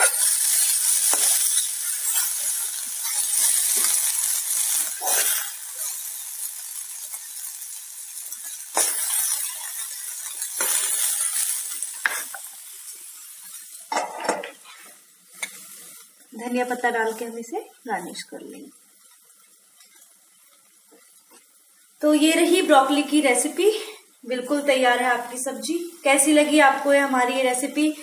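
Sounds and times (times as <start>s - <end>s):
spatula scraping a pan: 0.0s - 6.2s
vegetables sizzling in a pan: 0.0s - 28.0s.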